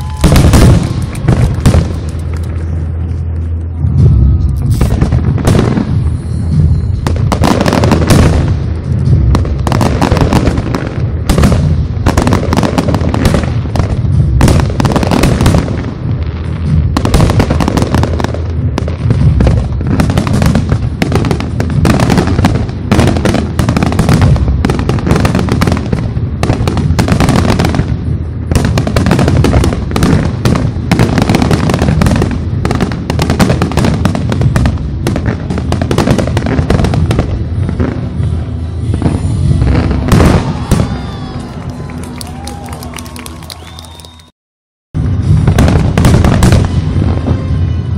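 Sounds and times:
firework shells bursting: 0.0s - 2.8s
crackling firework stars: 0.0s - 44.3s.

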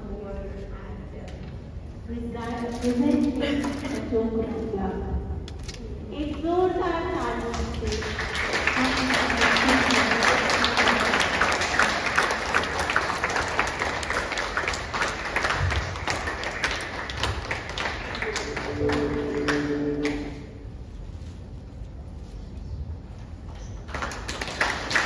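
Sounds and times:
audience applauding: 7.6s - 20.4s, 23.9s - 25.0s.

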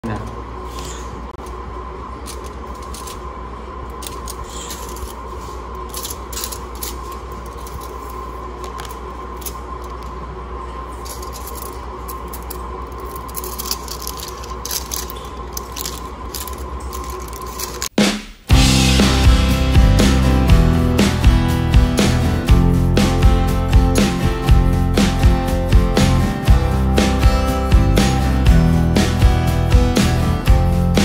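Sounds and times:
steady background hum: 0.0s - 31.0s.

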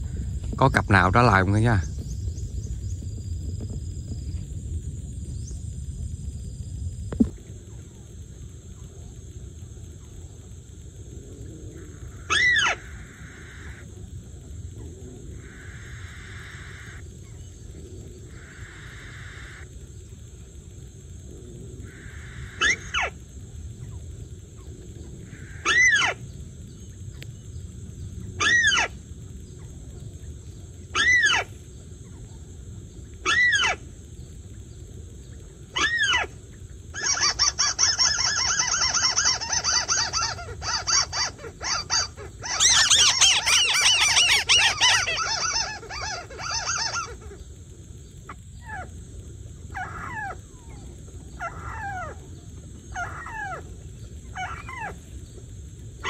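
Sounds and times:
recorded bird call from speaker: 0.5s - 2.2s.

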